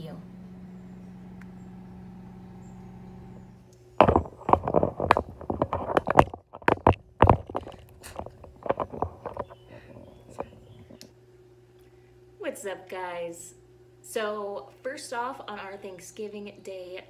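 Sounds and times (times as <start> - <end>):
steady low hum: 0.0 - 17.0
loud knocks and clatters: 4.0 - 10.9.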